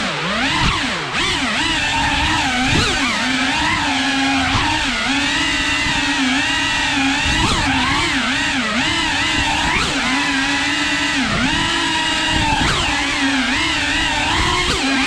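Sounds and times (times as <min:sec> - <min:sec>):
drone motors whining: 0:00.0 - 0:15.0.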